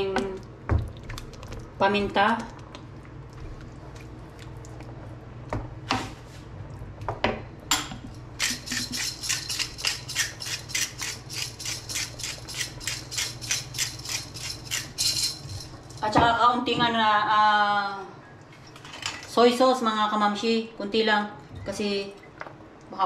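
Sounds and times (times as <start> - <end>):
pepper mill grinding: 8.4 - 16.0.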